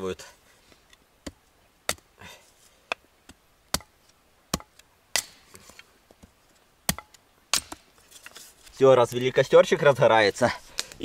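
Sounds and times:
firewood being chopped: 0.9s - 2.1s, 2.8s - 8.4s.

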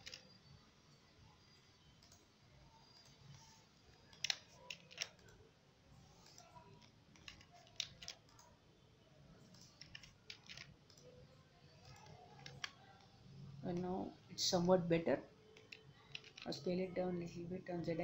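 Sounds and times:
computer keyboard and mouse clicks: 0.0s - 0.4s, 2.0s - 2.3s, 3.0s - 5.4s, 6.2s - 8.5s, 9.4s - 11.1s, 11.8s - 13.1s, 15.5s - 16.6s.

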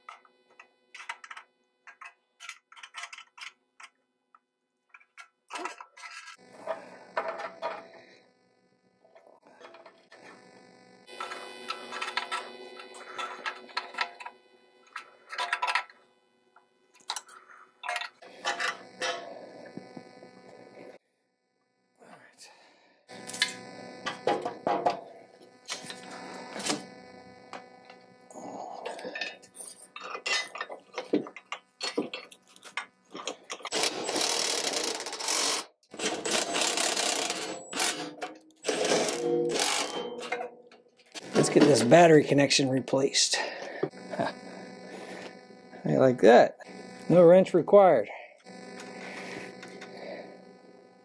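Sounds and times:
metal parts clinking and scraping: 1.0s - 4.0s, 4.9s - 6.4s, 29.2s - 34.2s
steady electrical hum: 5.5s - 21.0s, 21.8s - 51.0s
cordless impact driver running: 33.6s - 38.0s, 46.6s - 47.4s, 48.4s - 51.0s.

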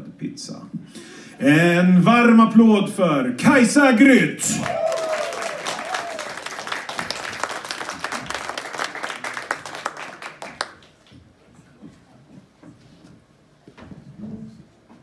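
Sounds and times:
audience applauding: 4.5s - 11.1s.

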